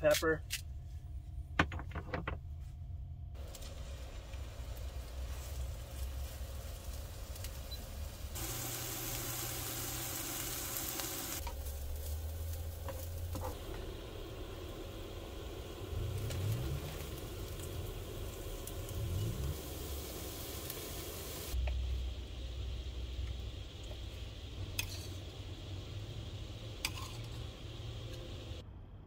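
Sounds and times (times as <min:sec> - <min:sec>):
vegetables sizzling in a skillet: 0:03.4 - 0:28.6
stirring in a skillet: 0:23.9 - 0:28.6.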